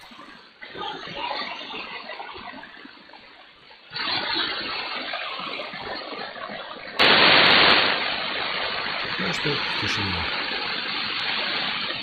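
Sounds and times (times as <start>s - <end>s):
radio static hiss: 8.8s - 10.6s.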